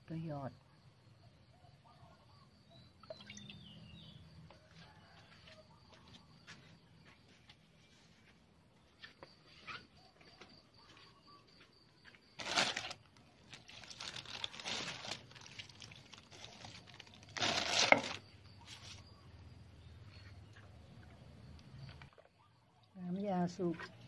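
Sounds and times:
plastic sheeting crinkling: 0:12.4 - 0:18.9.

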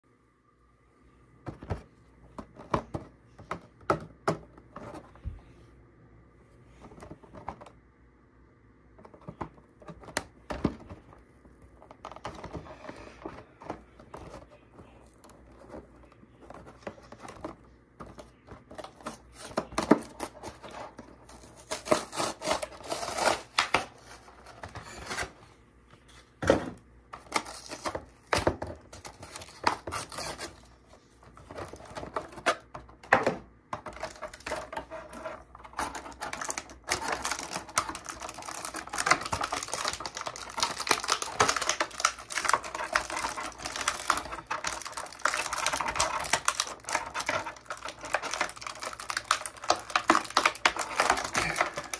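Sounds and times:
plastic crinkling and crackling: 0:09.0 - 0:25.4, 0:27.2 - 0:51.9.

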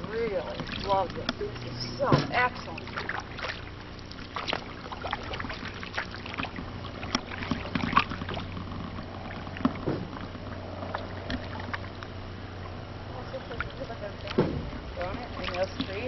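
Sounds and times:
paddle knocks: 0:00.0 - 0:03.6, 0:09.5 - 0:11.9, 0:14.2 - 0:16.0
paddle splashing in water: 0:00.0 - 0:16.0.

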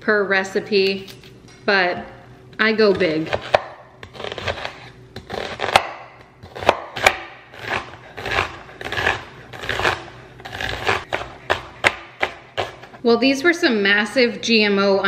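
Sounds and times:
knife dicing onion on wooden board: 0:02.8 - 0:13.0.

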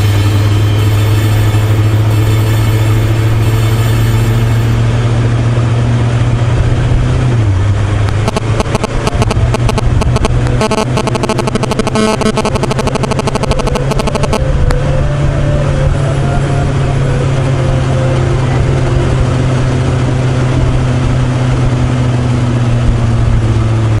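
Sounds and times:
music: 0:00.0 - 0:05.1, 0:12.3 - 0:19.7
motorcycle engine running: 0:00.0 - 0:24.0
wind and road noise: 0:00.0 - 0:24.0.

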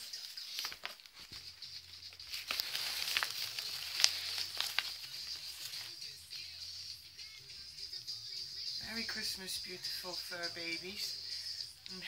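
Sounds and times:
wrapping paper rustling and crinkling: 0:00.0 - 0:06.2.

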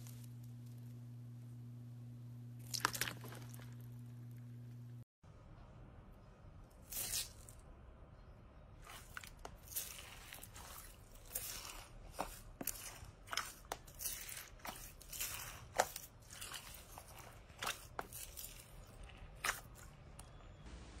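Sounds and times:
beads crunching in slime: 0:06.8 - 0:07.6, 0:08.8 - 0:20.0.

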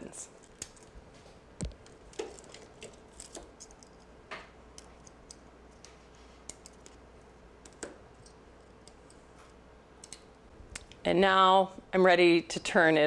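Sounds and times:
circuit boards clicking and tapping: 0:07.6 - 0:09.2, 0:10.0 - 0:11.0.

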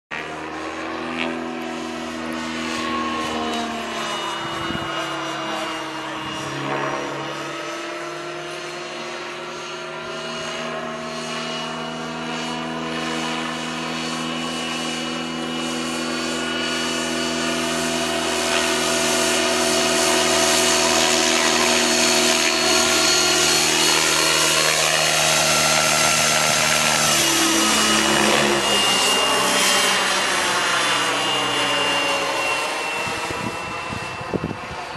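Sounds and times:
helicopter rotor hum: 0:00.1 - 0:34.9
turbine whine: 0:00.1 - 0:34.9.

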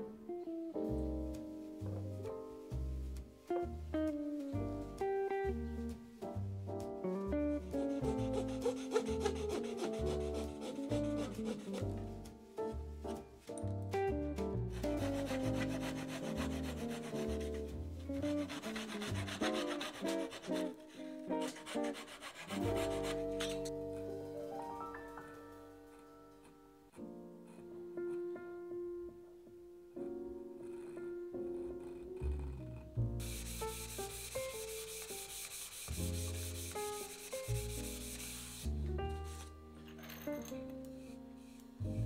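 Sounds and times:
background music: 0:00.0 - 0:42.0
sandpaper rubbing on wood: 0:07.8 - 0:11.9, 0:14.7 - 0:20.8, 0:21.4 - 0:23.6, 0:33.2 - 0:39.5
pull saw rasping on wood: 0:07.8 - 0:12.0, 0:14.8 - 0:23.7, 0:30.9 - 0:38.7.

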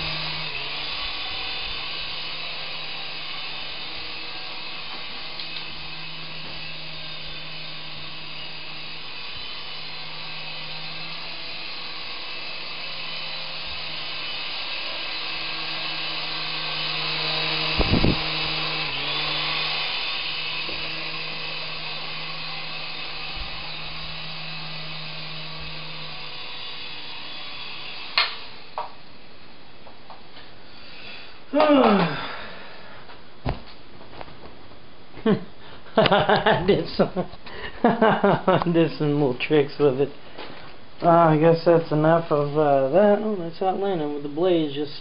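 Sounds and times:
remote-control helicopter whirring: 0:00.0 - 0:29.4, 0:30.7 - 0:32.8, 0:36.0 - 0:38.9
thumps: 0:33.4 - 0:34.6.

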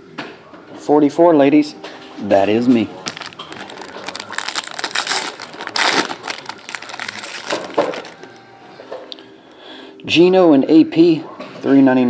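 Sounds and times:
foil wrapper tearing and crinkling: 0:03.0 - 0:08.4.

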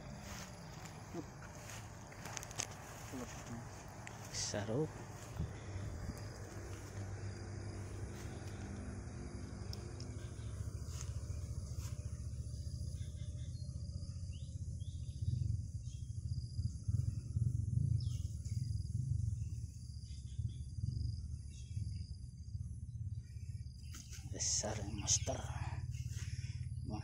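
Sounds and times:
grass rustling: 0:00.0 - 0:12.4, 0:23.9 - 0:26.6
insects chirring: 0:00.0 - 0:27.0
low rumble: 0:00.0 - 0:27.0.

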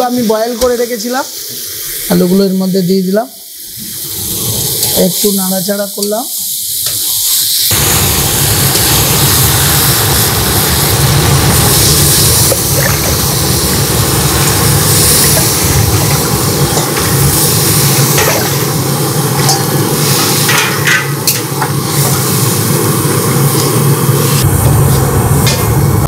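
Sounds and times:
burner roaring: 0:03.7 - 0:05.0, 0:07.7 - 0:26.0
metal ladle scraping a pan: 0:18.0 - 0:18.7.

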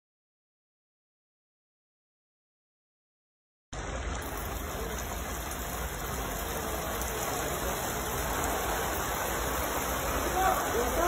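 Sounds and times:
heavy rain pouring down: 0:03.8 - 0:11.0.

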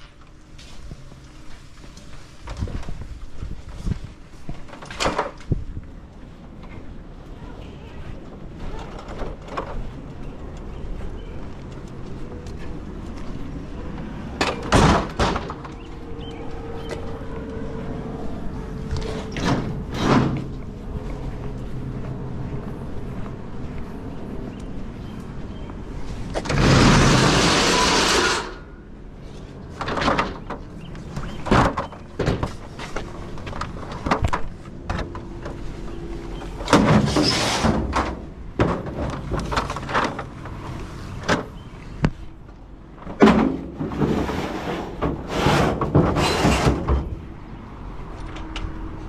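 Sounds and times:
cargo knocks and clatters: 0:14.4 - 0:15.8, 0:36.6 - 0:40.5, 0:43.0 - 0:47.2
door sliding rush: 0:26.2 - 0:28.8, 0:36.5 - 0:38.2, 0:43.2 - 0:47.2.

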